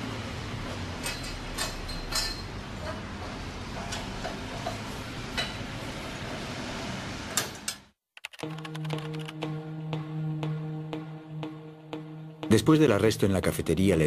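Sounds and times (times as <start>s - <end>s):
metal scaffolding tubes clinking: 1.0s - 3.0s.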